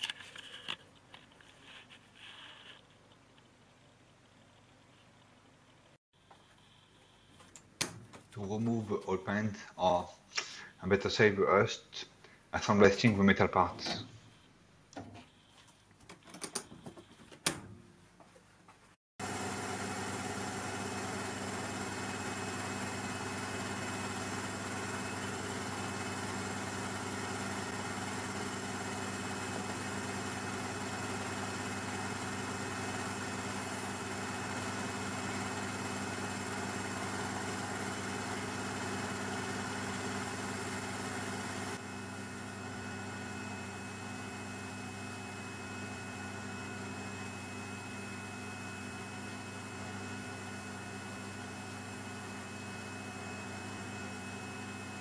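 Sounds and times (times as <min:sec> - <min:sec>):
air compressor motor hum: 0:19.2 - 0:55.0.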